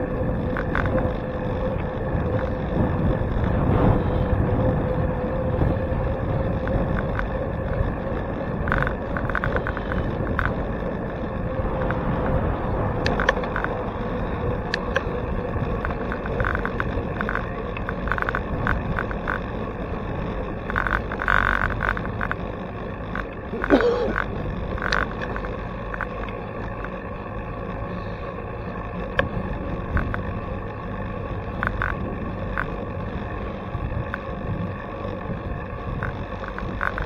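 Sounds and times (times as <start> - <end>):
wind on microphone: 0.0 - 19.4
bike rattles and clicks: 0.0 - 37.0
road rumble: 0.0 - 37.0.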